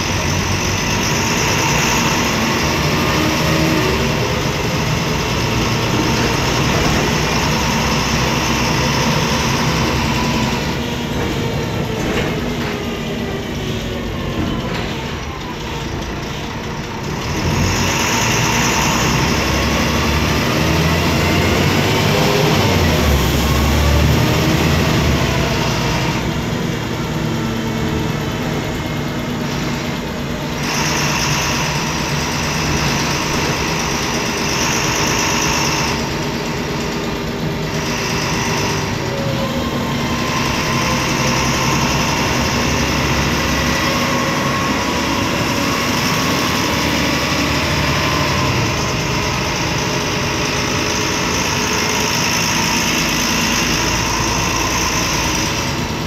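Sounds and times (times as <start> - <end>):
bus diesel engine drone: 0.0 - 56.0.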